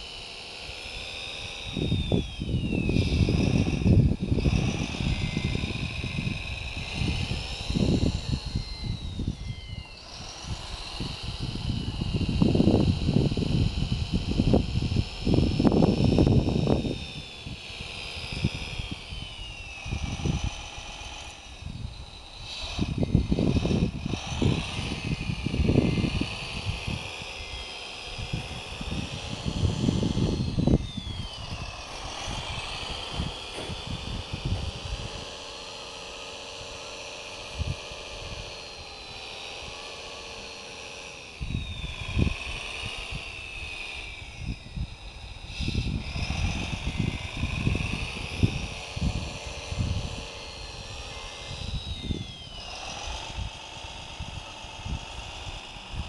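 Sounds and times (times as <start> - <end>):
toy loader motors whining: 0.0 - 56.0
wind buffeting microphone: 0.0 - 56.0.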